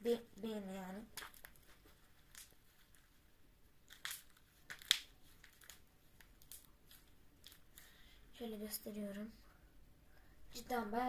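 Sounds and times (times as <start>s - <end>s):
slime clicks and crackles: 3.9s - 7.9s.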